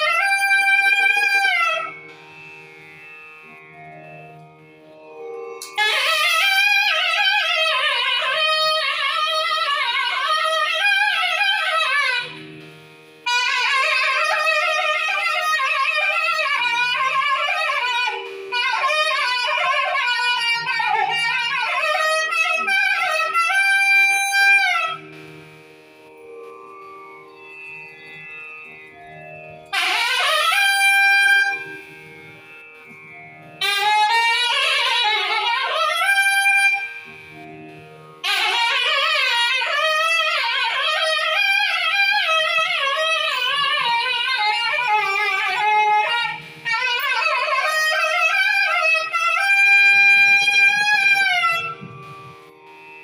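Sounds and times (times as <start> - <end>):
double reed horn melody: 29.7 - 32.6.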